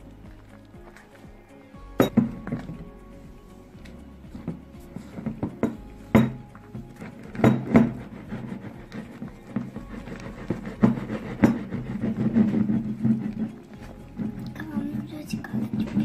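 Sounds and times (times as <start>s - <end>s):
slime squelching: 6.5s - 16.0s.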